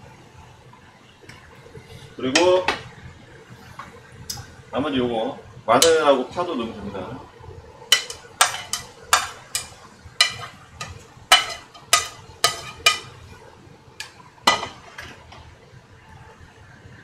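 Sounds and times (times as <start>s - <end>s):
metal utensil clinking on pot: 7.9s - 13.2s.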